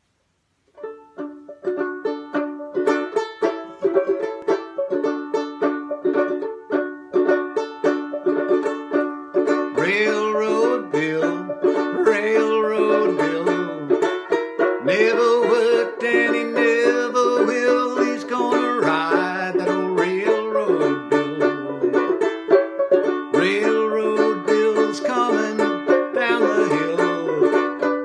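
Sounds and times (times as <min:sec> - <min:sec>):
banjo picking: 0:00.6 - 0:28.0.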